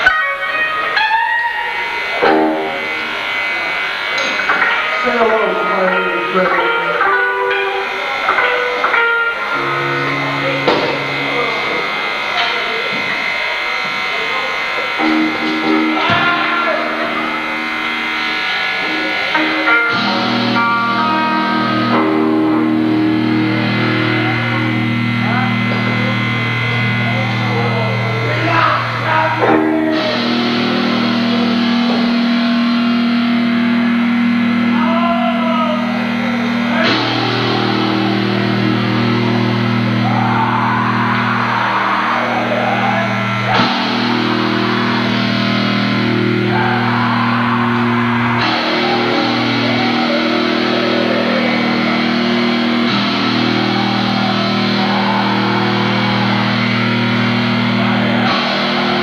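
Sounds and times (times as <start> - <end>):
bass guitar: 0.0 - 59.0
distorted electric guitar: 0.0 - 59.0.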